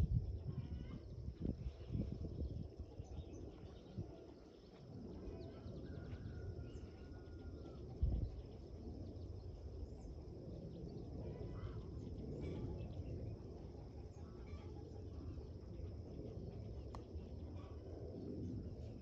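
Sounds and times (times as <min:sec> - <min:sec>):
steady low rumble: 0:00.0 - 0:19.0
faint bird chirps: 0:00.4 - 0:19.0.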